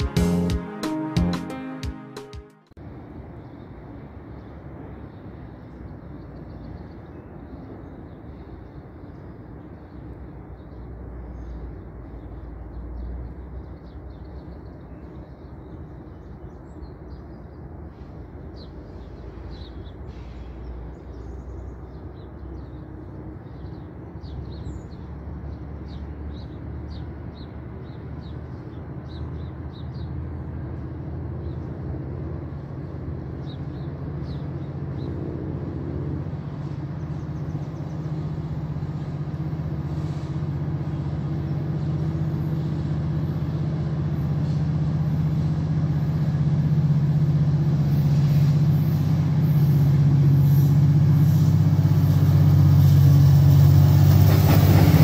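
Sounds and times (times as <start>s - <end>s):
low rumble of approaching train: 2.8s - 55.0s
small birds chirping: 3.3s - 43.8s.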